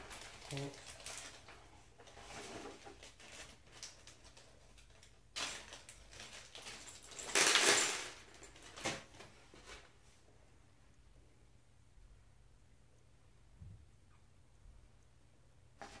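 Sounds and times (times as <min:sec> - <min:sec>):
rustling of paper and parts: 0:00.0 - 0:10.1, 0:15.8 - 0:16.0.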